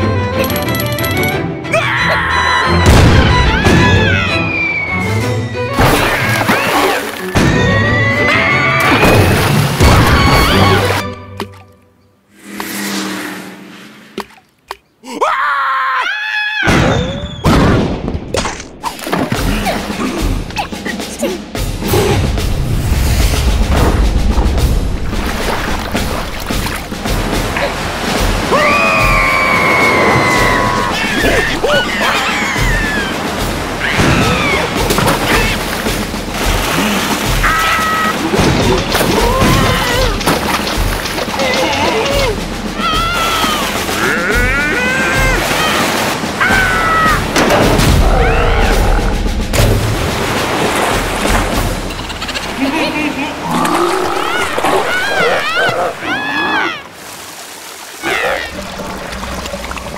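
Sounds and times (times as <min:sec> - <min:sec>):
water splashing: 0:05.8 - 0:15.0, 0:22.4 - 0:59.9.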